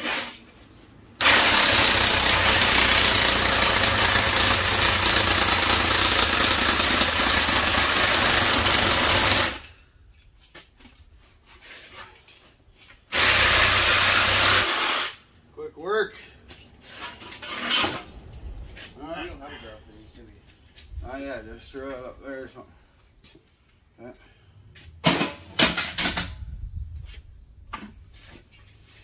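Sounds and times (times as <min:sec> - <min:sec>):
power hammer chisel rattling on metal: 0:01.2 - 0:09.7.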